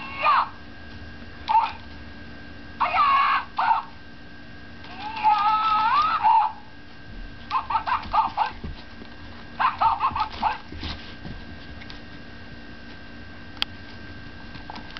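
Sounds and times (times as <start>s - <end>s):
puppy yapping: 1.5s - 1.8s, 2.8s - 3.9s, 7.5s - 8.7s, 9.6s - 10.8s.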